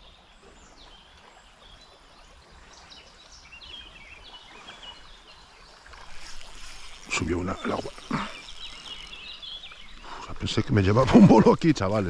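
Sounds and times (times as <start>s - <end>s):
small birds singing: 0.0s - 12.0s.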